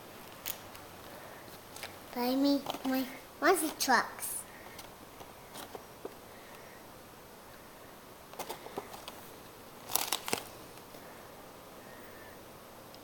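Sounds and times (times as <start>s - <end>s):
handling clicks and rustles: 0.2s - 3.9s, 8.3s - 11.0s.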